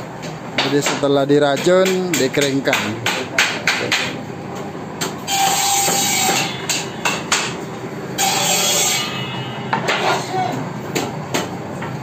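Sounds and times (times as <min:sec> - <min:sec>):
hammer striking wood: 0:01.6 - 0:04.2, 0:05.8 - 0:07.6.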